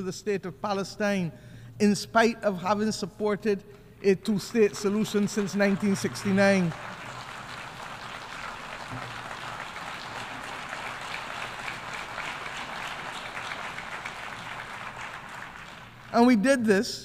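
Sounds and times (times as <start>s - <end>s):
crowd applauding: 4.5s - 16.3s.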